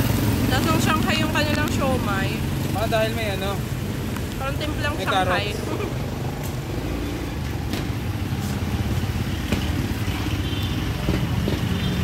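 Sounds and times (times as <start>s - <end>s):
vehicle engine running: 0.0s - 5.6s
light street noise: 0.0s - 12.0s.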